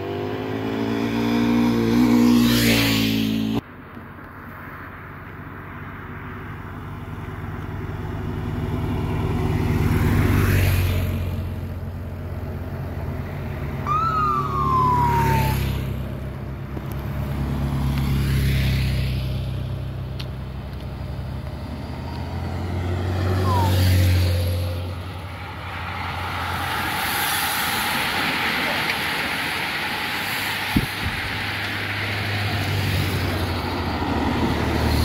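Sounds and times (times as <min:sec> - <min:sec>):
motorcycles passing: 0:00.0 - 0:03.6, 0:12.7 - 0:19.5, 0:22.1 - 0:35.0
siren yelp: 0:13.8 - 0:15.9, 0:23.3 - 0:24.1.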